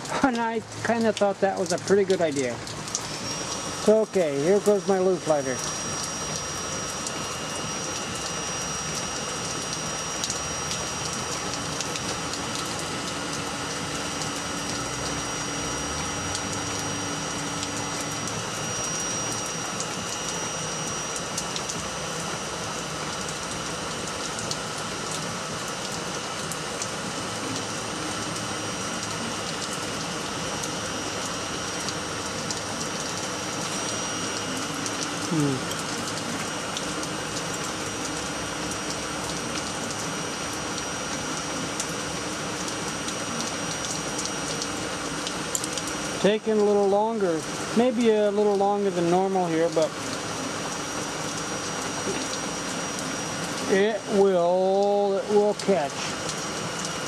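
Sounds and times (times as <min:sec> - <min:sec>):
electric charcoal lighter fan whir: 0:00.0 - 0:57.0.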